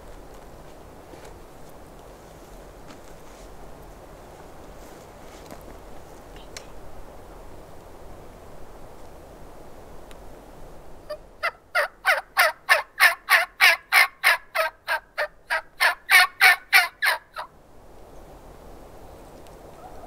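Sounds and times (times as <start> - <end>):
turkey yelps: 11.1 - 17.5, 19.7 - 20.0.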